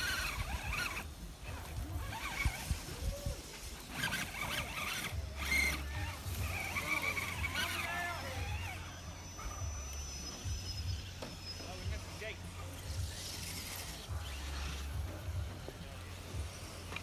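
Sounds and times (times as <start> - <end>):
tyres scrabbling through dry grass: 0.0 - 8.9
electric motor whining: 0.0 - 17.0.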